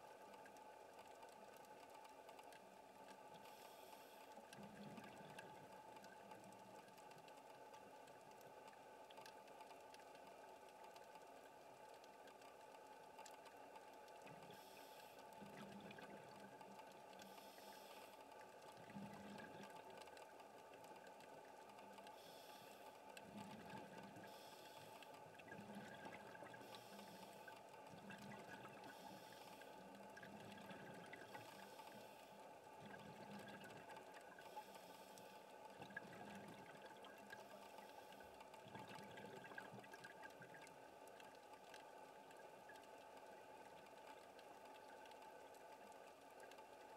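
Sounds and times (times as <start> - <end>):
faint steady hum: 0.0 - 46.9
exhaled air bubbling: 4.4 - 6.9, 14.1 - 20.4, 21.1 - 45.1.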